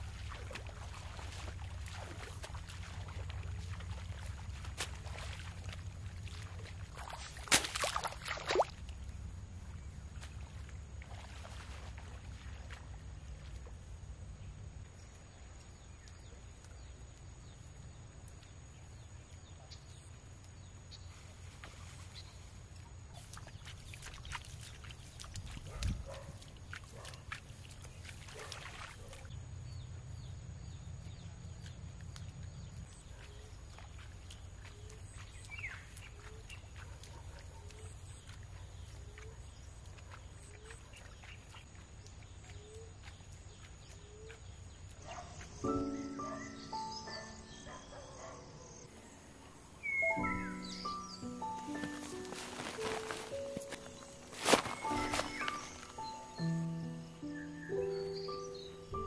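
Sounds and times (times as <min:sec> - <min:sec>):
water splashing and sloshing: 0:00.0 - 0:59.0
low steady rumble: 0:02.4 - 0:07.0, 0:08.7 - 0:15.6.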